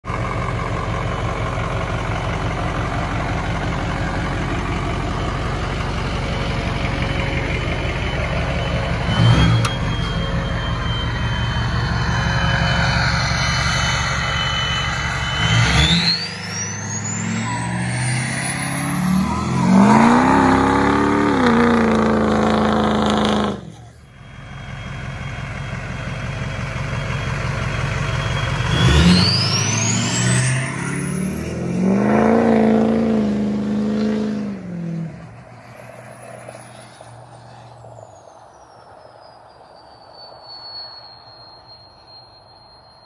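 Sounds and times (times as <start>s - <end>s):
diesel engine idling: 0.0s - 36.1s
engine revving: 3.8s - 24.0s, 28.1s - 37.8s
turbo whistle: 7.2s - 33.3s, 38.1s - 43.0s.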